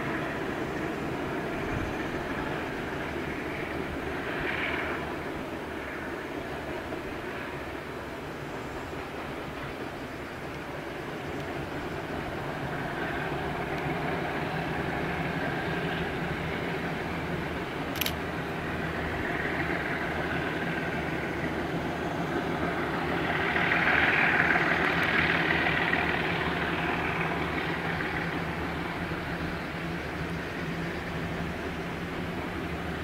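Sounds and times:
diesel locomotive engine drone: 0:00.0 - 0:33.0
sharp click: 0:18.0 - 0:18.2.

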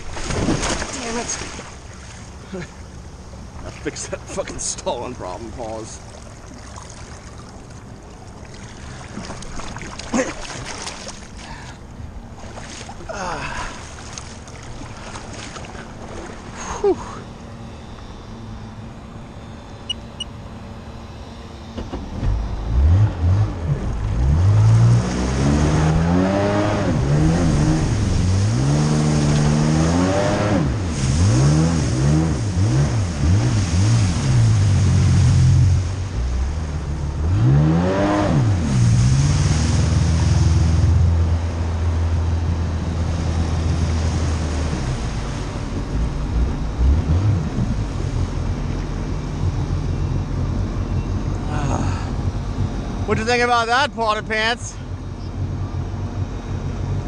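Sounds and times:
personal watercraft engine revving: 0:12.1 - 0:53.8.

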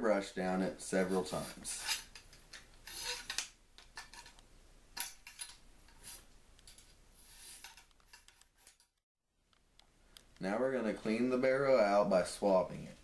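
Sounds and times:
wire brush scraping in gun barrel: 0:01.0 - 0:04.4, 0:05.0 - 0:09.0.

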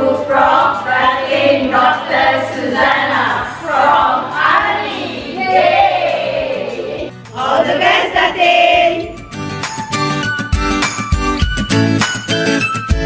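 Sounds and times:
women singing in unison: 0:00.0 - 0:09.2.

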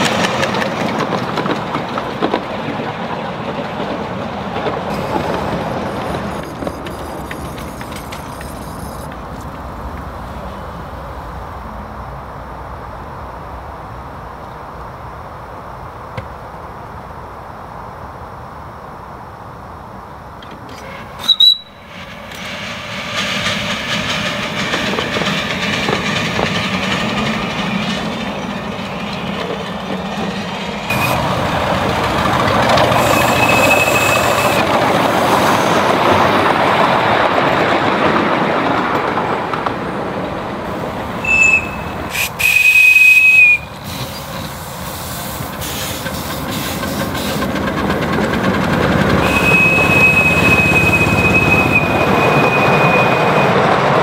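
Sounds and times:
miniature trains on track: 0:00.0 - 0:14.7, 0:19.5 - 0:54.0
steam whistle blasts: 0:20.8 - 0:21.9, 0:32.9 - 0:34.7, 0:41.2 - 0:44.1, 0:49.2 - 0:53.6.

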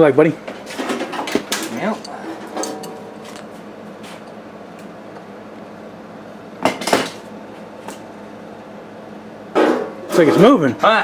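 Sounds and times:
hand tools clanking on metal: 0:00.8 - 0:03.6.

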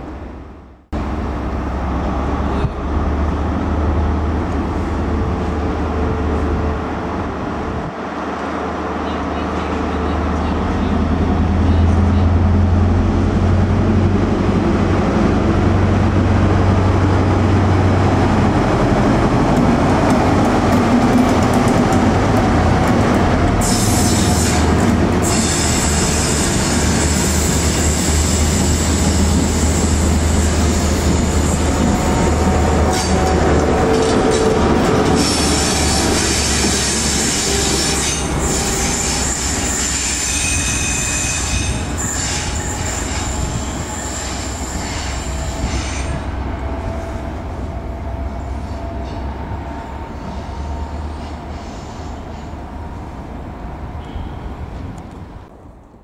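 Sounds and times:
diesel engine drone: 0:00.2 - 0:23.6
train wheel squeal: 0:25.2 - 0:32.0, 0:35.1 - 0:46.3, 0:48.4 - 0:52.6, 0:54.0 - 0:54.5.

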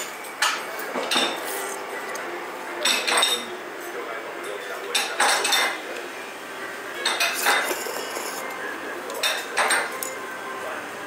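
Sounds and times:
utensils clinking on ceramic bowl: 0:07.0 - 0:08.4, 0:09.2 - 0:10.2.

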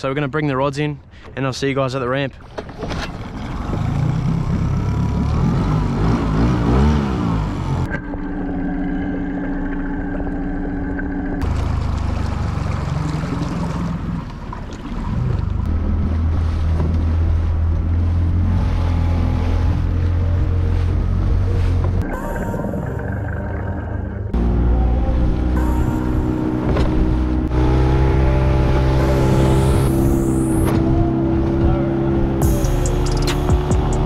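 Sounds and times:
outboard motor droning: 0:02.4 - 0:34.0
water rushing past hull: 0:07.9 - 0:24.2.

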